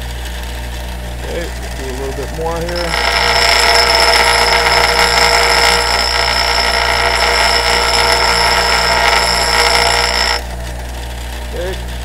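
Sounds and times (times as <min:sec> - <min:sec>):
bench grinder motor: 0:02.4 - 0:10.6
high-pitched metal grinding: 0:02.5 - 0:10.6.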